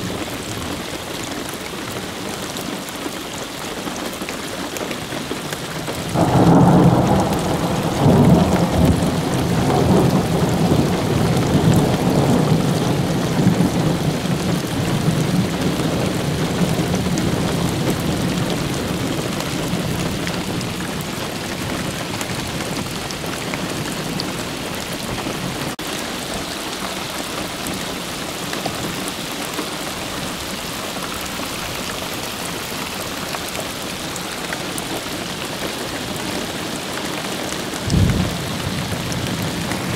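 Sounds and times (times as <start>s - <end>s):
steady rain hissing: 0.0s - 39.9s
thunder rolling: 6.0s - 20.7s, 37.9s - 39.9s.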